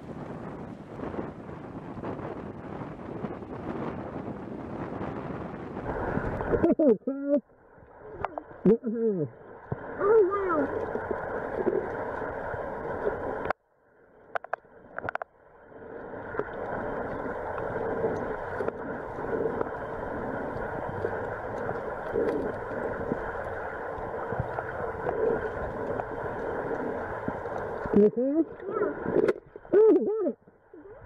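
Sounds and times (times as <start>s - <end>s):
muffled underwater water rushing: 0.0s - 31.0s
faint clicks: 14.3s - 15.3s, 16.3s - 28.0s.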